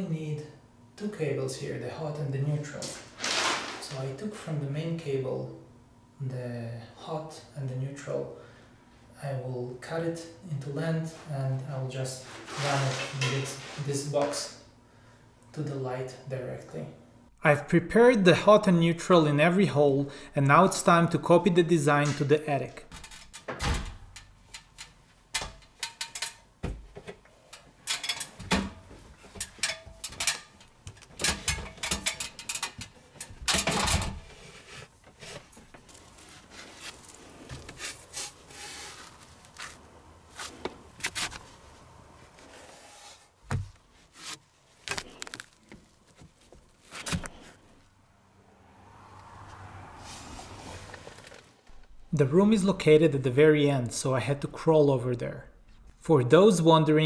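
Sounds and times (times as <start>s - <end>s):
knocks and scraping on ladder: 21.9s - 39.8s.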